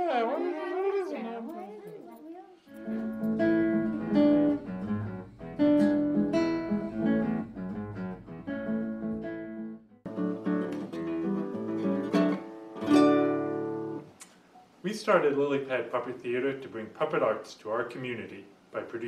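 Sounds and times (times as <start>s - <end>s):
acoustic guitar: 1.0s - 14.7s.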